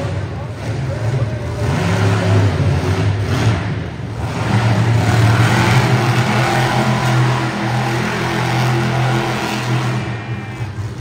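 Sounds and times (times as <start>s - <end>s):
truck engine revving hard: 0.0s - 11.0s.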